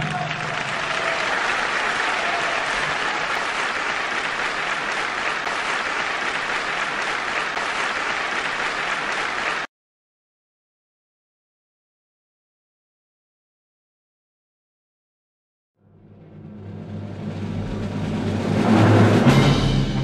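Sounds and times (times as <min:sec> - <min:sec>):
theatre audience applauding: 0:00.0 - 0:09.7.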